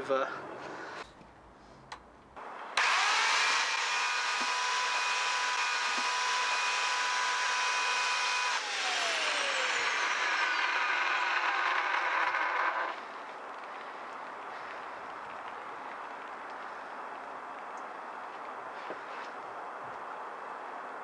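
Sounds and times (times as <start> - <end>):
electric chainsaw whining: 2.8 - 13.3.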